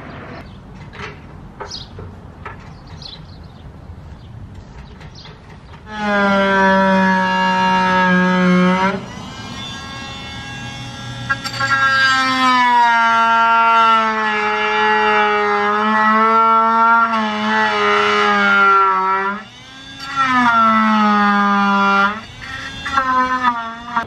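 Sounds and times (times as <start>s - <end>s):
power drill whining: 5.8s - 24.0s.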